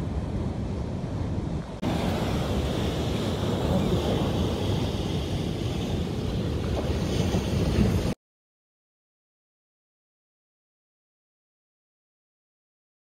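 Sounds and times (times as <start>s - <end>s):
wind rumbling on microphone: 0.0s - 8.2s
breaking surf: 1.7s - 8.2s.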